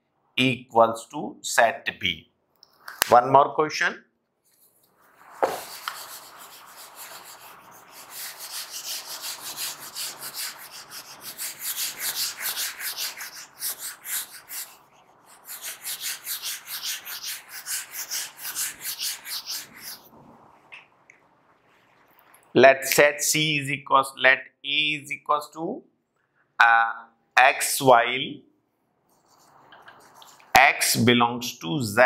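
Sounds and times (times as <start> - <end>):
duster rubbing whiteboard: 4.9 - 20.2, 29.1 - 30.6.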